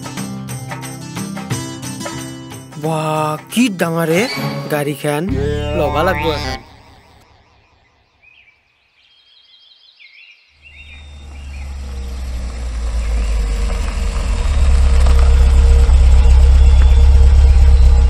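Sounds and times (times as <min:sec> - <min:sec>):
car engine rumble approaching: 0:10.6 - 0:18.0.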